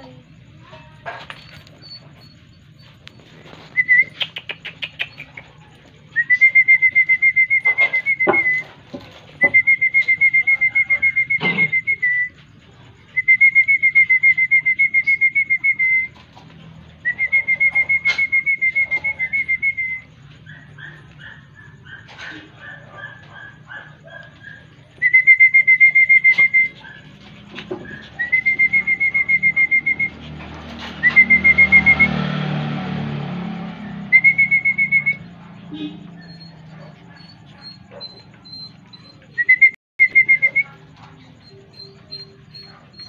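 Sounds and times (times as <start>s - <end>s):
bird trilling: 34.2s - 43.0s.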